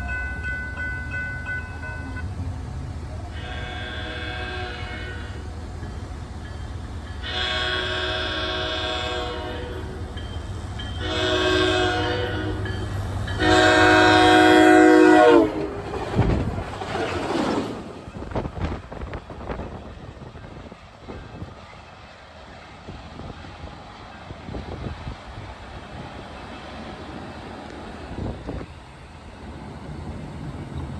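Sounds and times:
train rushing and clattering past: 0.0s - 30.9s
train air horn blasts: 3.3s - 5.5s, 7.2s - 10.1s, 11.0s - 12.8s, 13.4s - 15.7s.

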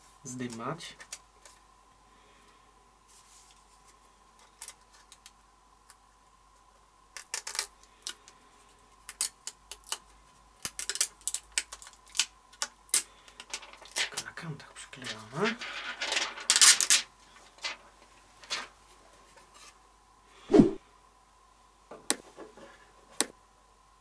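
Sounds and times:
plastic film peeling crackles: 10.7s - 12.7s.

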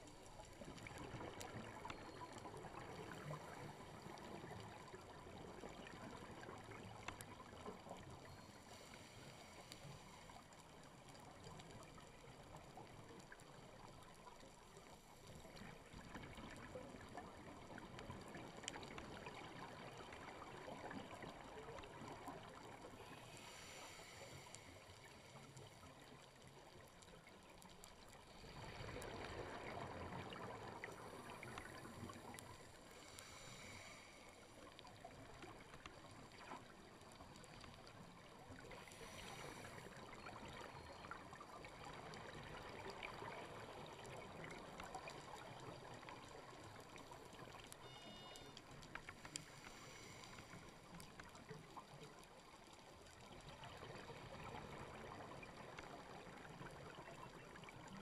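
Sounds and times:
small clicks crackling: 0.0s - 58.0s
underwater hiss: 8.4s - 10.5s, 22.5s - 25.9s, 28.3s - 34.8s, 38.6s - 40.2s, 49.1s - 51.0s.

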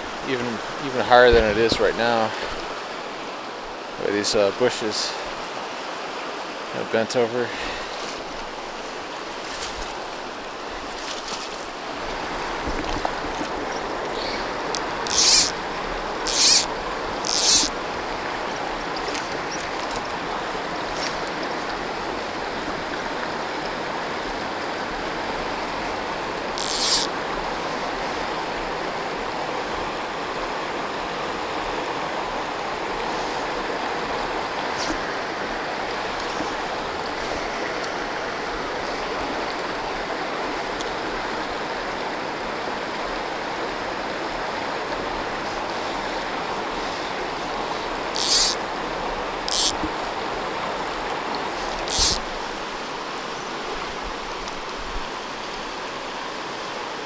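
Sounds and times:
river rushing over rocks: 0.0s - 57.0s
brief scratchy noises: 15.1s - 15.5s, 16.3s - 16.7s, 48.2s - 48.6s, 51.8s - 52.2s.

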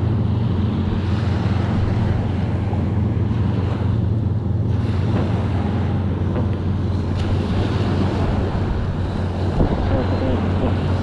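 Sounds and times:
surf washing on shore: 0.0s - 11.0s
wind buffeting microphone: 0.0s - 11.0s.

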